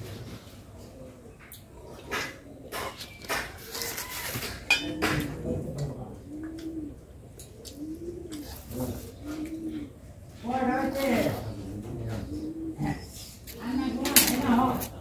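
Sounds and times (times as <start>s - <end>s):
pigeon cooing: 0.0s - 15.0s
steel dishes clinking: 4.7s - 5.0s.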